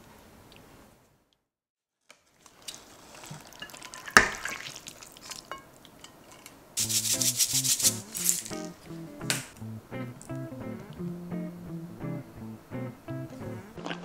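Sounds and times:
utensil scraping in a pan: 0:02.5 - 0:08.7
background music with beat: 0:06.8 - 0:09.5.

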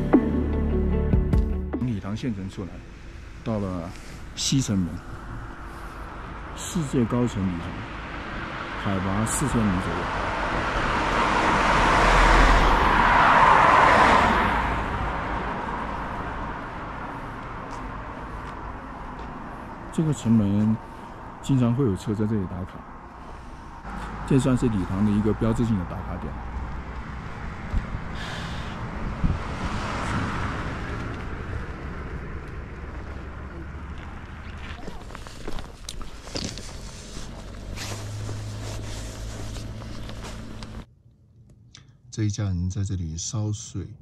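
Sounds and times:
road noise: 0:00.0 - 0:43.8
van driving past: 0:02.2 - 0:40.9
wind noise: 0:26.8 - 0:37.8.

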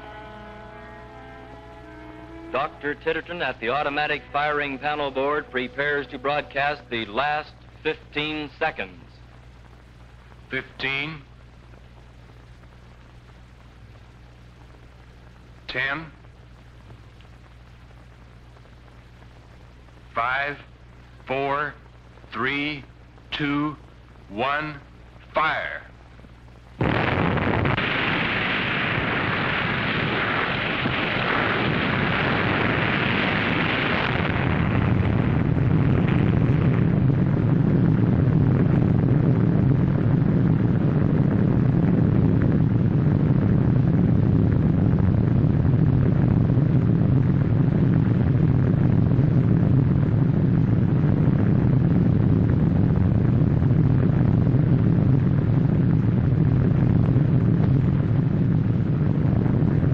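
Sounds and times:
explosion with hiss and rumble: 0:25.4 - 0:59.9.

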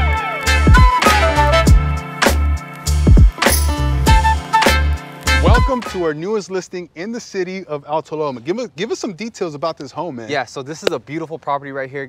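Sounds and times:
instrumental music with bass and drums: 0:00.0 - 0:06.2.

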